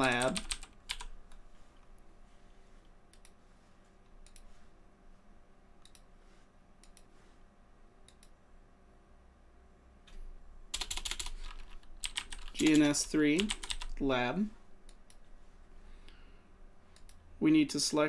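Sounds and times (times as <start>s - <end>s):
computer keyboard typing: 0.0s - 1.4s, 10.7s - 14.0s.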